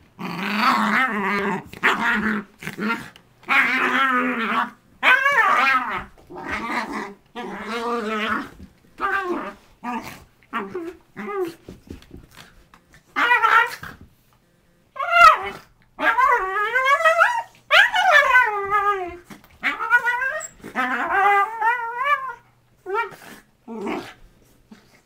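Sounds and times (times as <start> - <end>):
dogs play growling: 0.1 - 14.1, 15.0 - 25.0.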